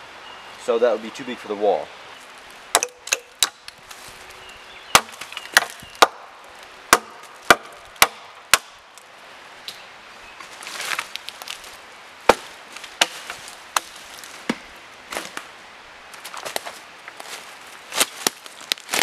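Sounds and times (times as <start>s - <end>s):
blade chopping wood: 2.7s - 3.7s, 4.9s - 6.3s, 6.9s - 8.8s.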